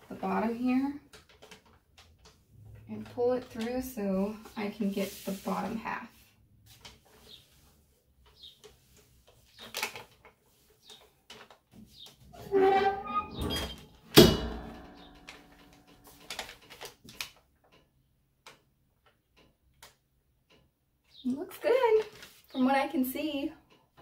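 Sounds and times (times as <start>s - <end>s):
paper rustling: 6.7s - 12.2s, 15.2s - 17.4s, 21.9s - 22.6s
heat press creaking: 12.4s - 15.8s
metal clunk of press locking: 13.2s - 15.1s.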